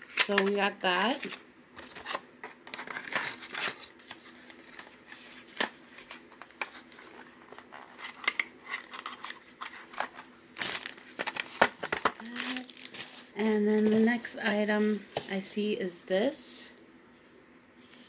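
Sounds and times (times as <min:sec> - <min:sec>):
plastic wrapping rustling: 0:02.8 - 0:14.6.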